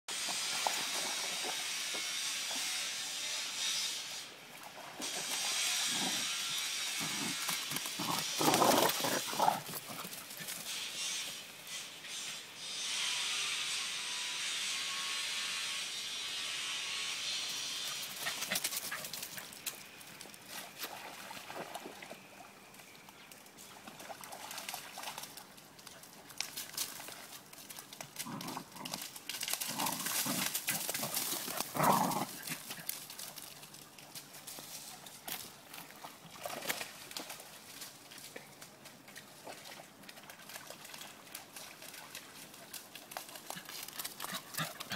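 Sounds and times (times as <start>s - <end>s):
dogs growling: 7.0s - 10.0s, 28.2s - 32.7s.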